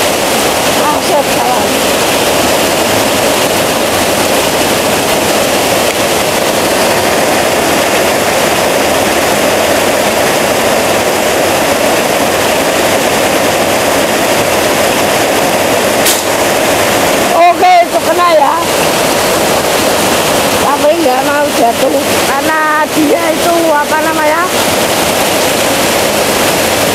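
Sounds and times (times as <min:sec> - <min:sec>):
heavy rain pouring: 0:00.0 - 0:26.9.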